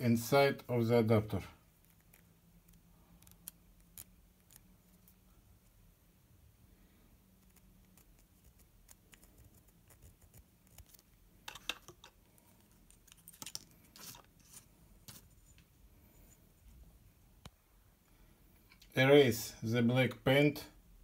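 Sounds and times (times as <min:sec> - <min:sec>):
small clicks and scrapes: 0:01.8 - 0:05.3, 0:07.4 - 0:16.4.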